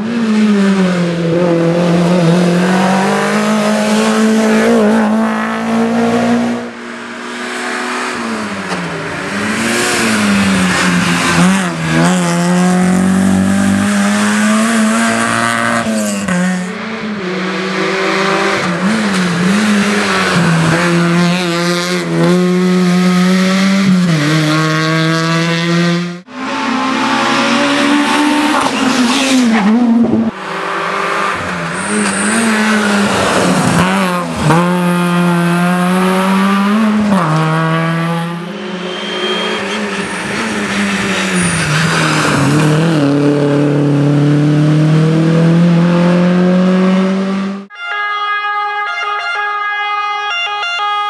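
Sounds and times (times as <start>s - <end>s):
rally car engines at high revs: 0.0s - 47.7s.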